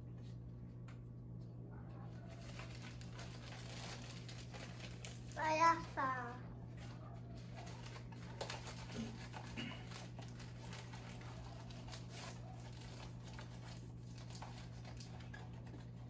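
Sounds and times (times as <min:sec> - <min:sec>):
low electrical hum: 0:00.0 - 0:16.0
plastic packaging crinkling: 0:02.2 - 0:16.0.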